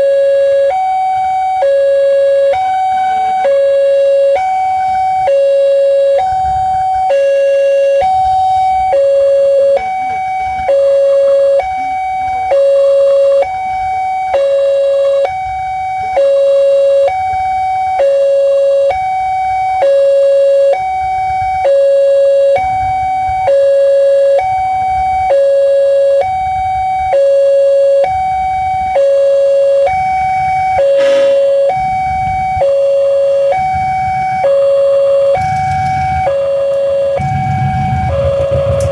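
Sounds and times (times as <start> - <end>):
two-tone level crossing alarm: 0.0 - 38.9
short noisy burst: 30.8 - 31.8.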